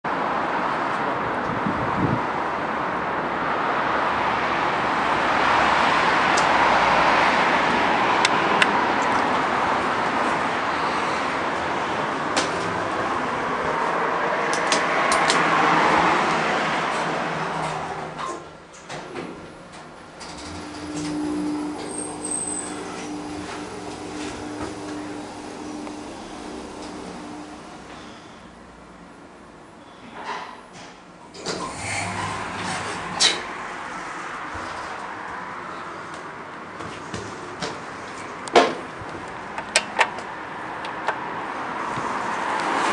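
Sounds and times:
outdoor traffic noise: 0:00.0 - 0:42.9
sliding doors closing: 0:03.7 - 0:28.9, 0:30.1 - 0:42.9
elevator running with low hum: 0:19.0 - 0:29.4, 0:31.2 - 0:35.0.

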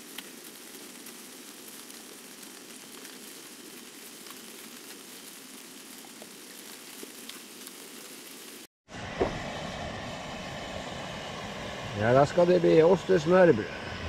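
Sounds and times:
snow ticking on tent fabric: 0:00.0 - 0:08.7.

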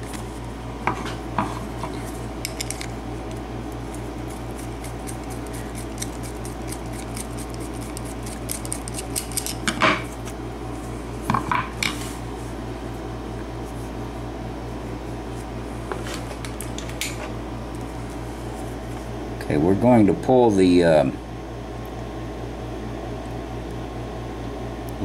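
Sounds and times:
steady low hum: 0:00.0 - 0:25.0
screwdriver working against padlock: 0:04.8 - 0:09.6.

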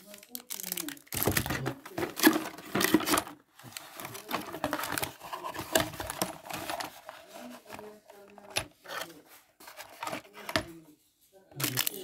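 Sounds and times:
cardboard box being opened: 0:01.2 - 0:10.7.

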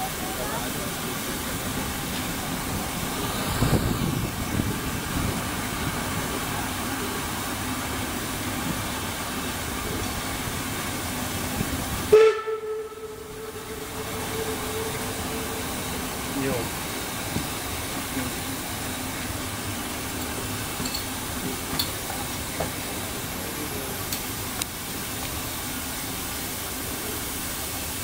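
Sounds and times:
steam hissing: 0:00.0 - 0:28.0
steady tone: 0:12.1 - 0:16.9.

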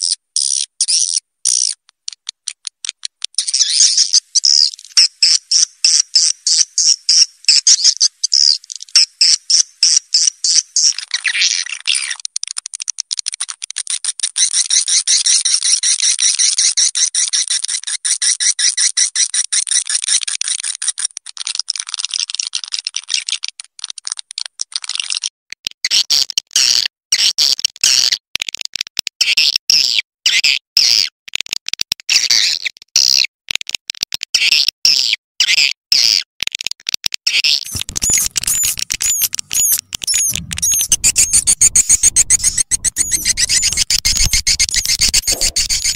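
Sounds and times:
rising chirps: 0:37.7 - 0:45.9
swiftlets twittering from speakers: 0:37.7 - 0:45.9
low rumble: 0:37.8 - 0:45.5.

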